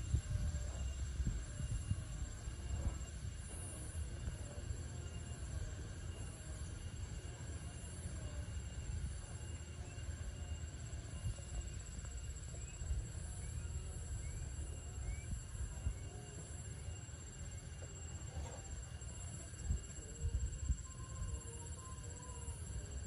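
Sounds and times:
high insect drone: 0:00.0 - 0:23.0.

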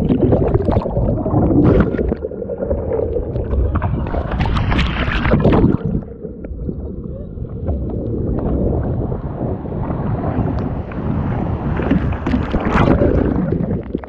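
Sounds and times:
rushing water: 0:00.0 - 0:14.0
wind buffeting microphone: 0:03.7 - 0:13.9.

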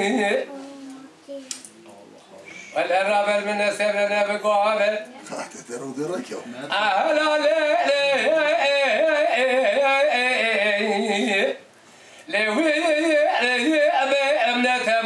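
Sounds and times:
man singing unaccompanied: 0:00.0 - 0:00.5, 0:02.7 - 0:05.1, 0:06.6 - 0:15.0.

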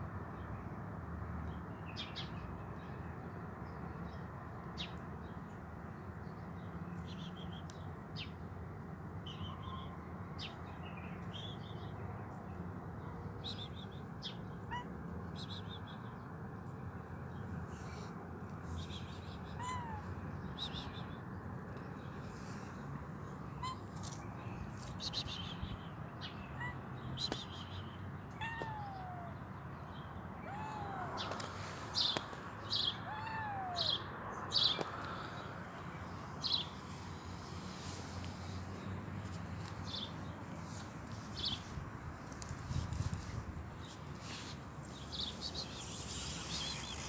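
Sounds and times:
kitten meowing: 0:19.6 - 0:20.7, 0:28.4 - 0:29.3, 0:30.4 - 0:31.4, 0:33.0 - 0:33.9
sharp crackling rustles: 0:40.6 - 0:47.0.

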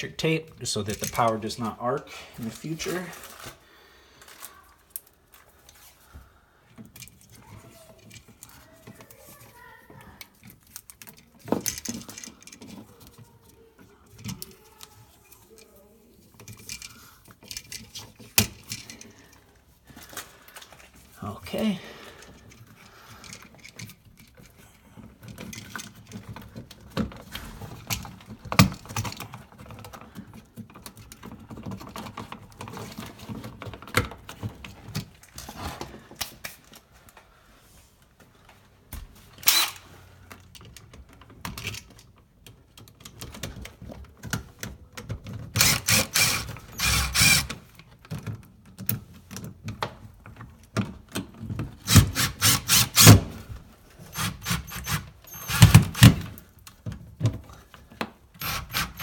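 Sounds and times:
clicks and knocks of plastic and wire: 0:06.7 - 0:21.1, 0:22.2 - 0:37.2, 0:40.3 - 0:45.7, 0:47.6 - 0:51.8, 0:55.7 - 0:58.4
cordless drill driving screws: 0:39.4 - 0:39.8, 0:45.6 - 0:47.6, 0:51.8 - 0:53.3, 0:54.1 - 0:56.4, 0:58.4 - 0:59.0.

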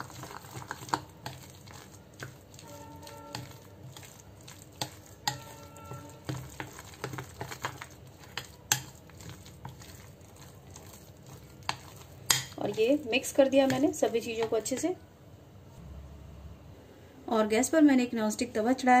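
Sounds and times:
spoon stirring thick batter: 0:00.0 - 0:15.0
spoon clinking against glass: 0:05.3 - 0:06.4.

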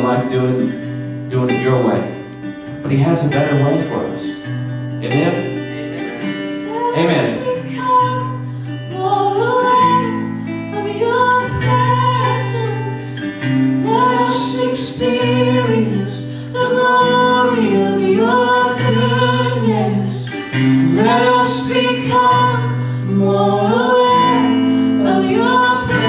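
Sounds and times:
strummed acoustic guitar: 0:00.0 - 0:26.0
man singing into a microphone: 0:17.4 - 0:22.4.

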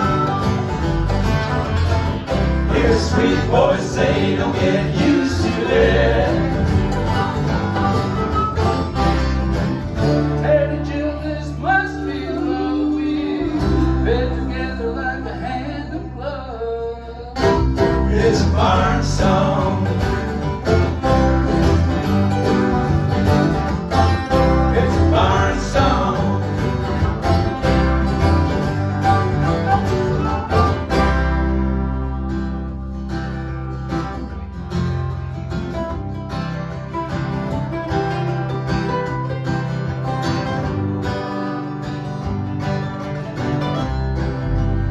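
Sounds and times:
acoustic band playing: 0:00.0 - 0:44.9
harmonica sliding notes: 0:28.7 - 0:31.5.

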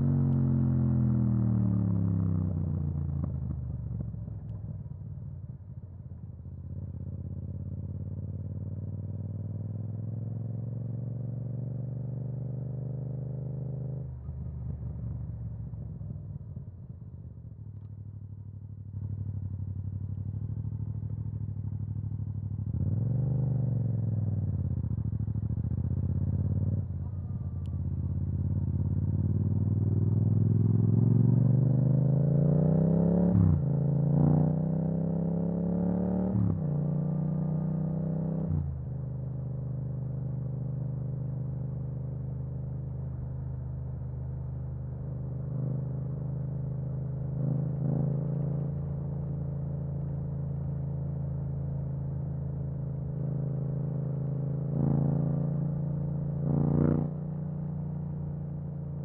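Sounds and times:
motorcycle engine accelerating: 0:19.0 - 0:59.0.

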